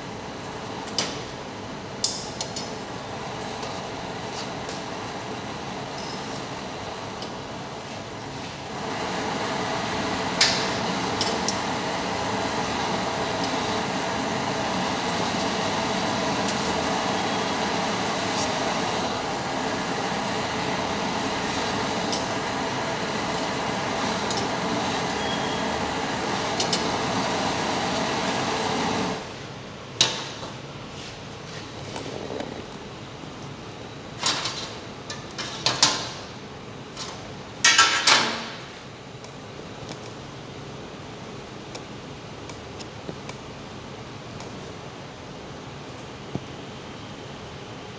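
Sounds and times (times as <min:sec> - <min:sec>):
gas burner flame rushing: 0:06.5 - 0:29.4.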